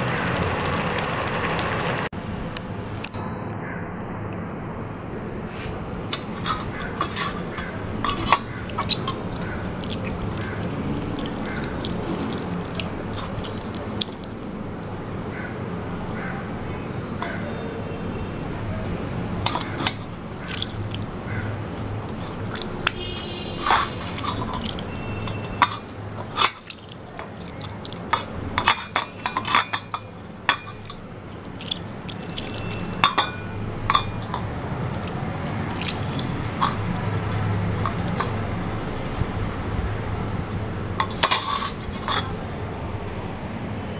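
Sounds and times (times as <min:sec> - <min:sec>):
hand squishing tomato in water: 0:06.6 - 0:15.1, 0:19.5 - 0:33.2, 0:33.9 - 0:38.4.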